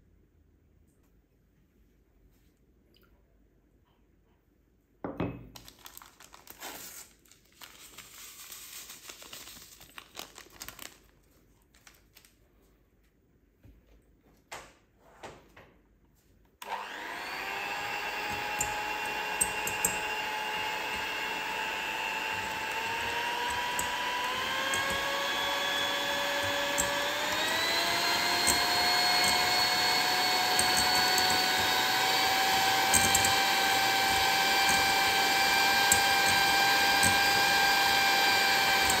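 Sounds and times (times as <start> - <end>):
electric kitchen mixer whine: 16.6 - 39.0.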